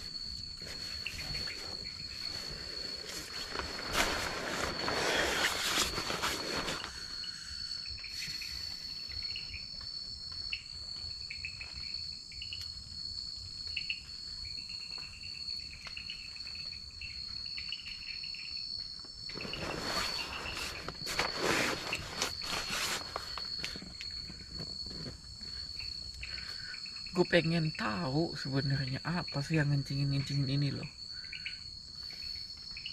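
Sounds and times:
rustling: 0.0s - 7.3s, 19.3s - 26.5s
crickets chirping: 0.0s - 32.9s
insects buzzing drone: 0.0s - 32.9s.

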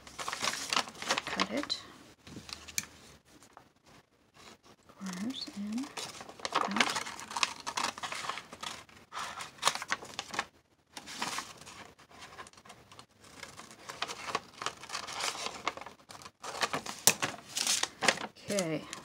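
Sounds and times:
paper rustling and crinkling: 0.0s - 19.0s.

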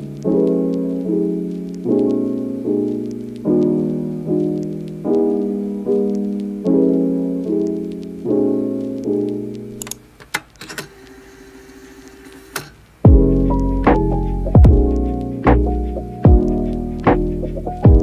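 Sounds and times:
soft piano music: 0.0s - 9.9s, 13.0s - 18.0s
piano piece with deep bass: 13.1s - 18.0s.

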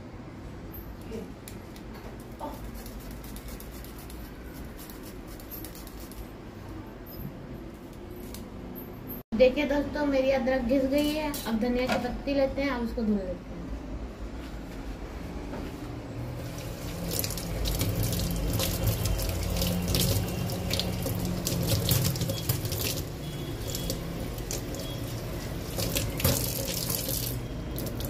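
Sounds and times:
water splashing on leaves: 16.5s - 28.0s.

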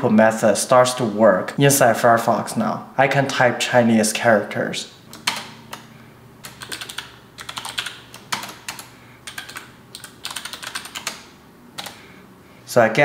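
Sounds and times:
typing on computer keyboard: 5.1s - 5.8s, 6.4s - 12.0s.

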